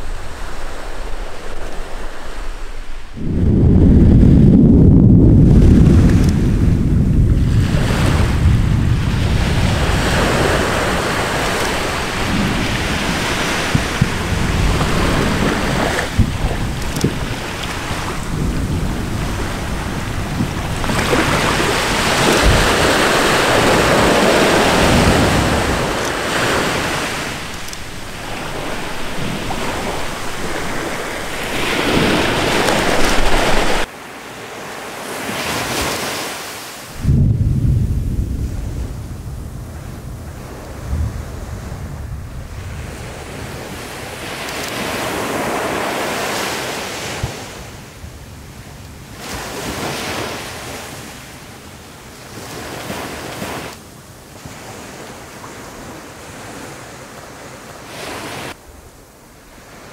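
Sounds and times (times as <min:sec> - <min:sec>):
volcano eruption rushing: 0:00.0 - 0:33.9, 0:36.9 - 0:43.2
wind on microphone: 0:00.0 - 0:33.9, 0:36.8 - 0:51.4.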